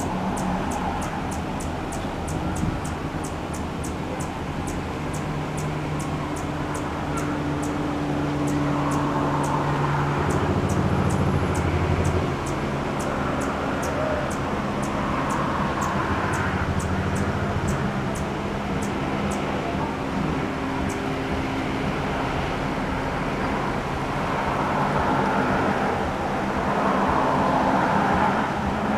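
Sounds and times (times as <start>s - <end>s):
hummingbird high chip notes: 0.0s - 19.7s.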